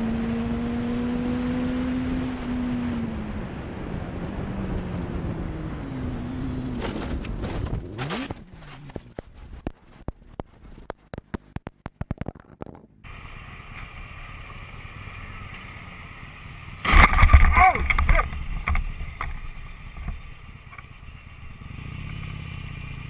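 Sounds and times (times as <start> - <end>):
motorcycle engine revving: 0.0 - 9.6, 12.9 - 23.0
motorcycle engine drone in traffic: 0.0 - 23.0
motorcycle scraping along road: 4.6 - 11.6, 12.4 - 23.0.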